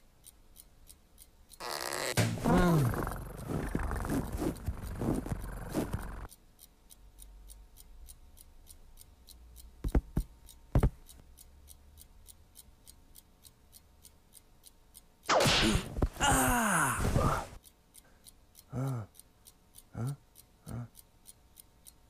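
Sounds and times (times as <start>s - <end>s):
clock ticking: 0.0s - 22.0s
short thumps: 2.2s - 2.8s, 9.8s - 11.0s.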